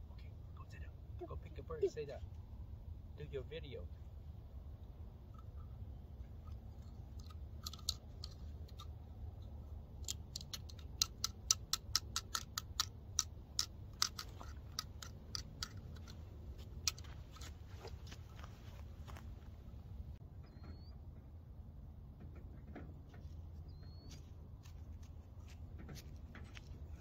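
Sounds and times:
steady low rumble: 0.0 - 27.0
small sharp clicks: 6.5 - 16.2.

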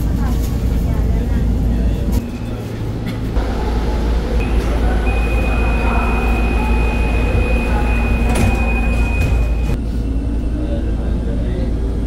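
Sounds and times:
train car low rumble: 0.0 - 12.0
continuous high-pitched beep: 4.4 - 9.8.

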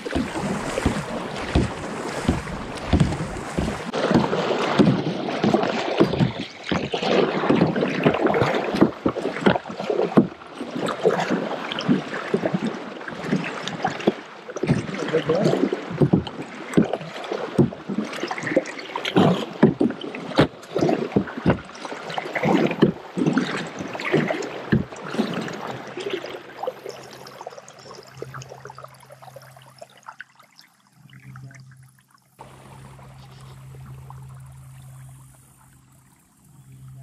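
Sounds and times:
paddle splashing through water: 0.0 - 37.0
low steady hum: 30.8 - 37.0.

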